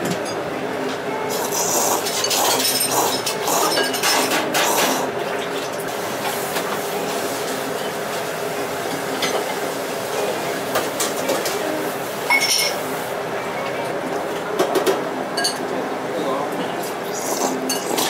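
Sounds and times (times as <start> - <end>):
steady background hum: 0.0 - 18.0
noodles slurped: 1.3 - 3.9, 17.0 - 18.0
tableware clicks: 12.3 - 12.8.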